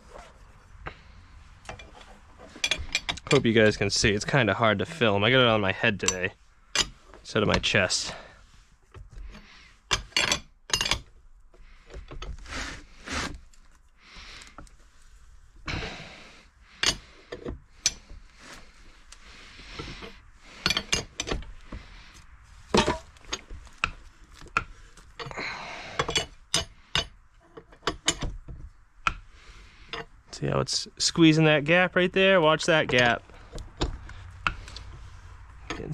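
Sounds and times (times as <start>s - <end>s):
metal scrapes: 0.0s - 8.3s
metal tools clinking: 1.7s - 7.0s, 9.9s - 11.1s, 20.6s - 21.4s.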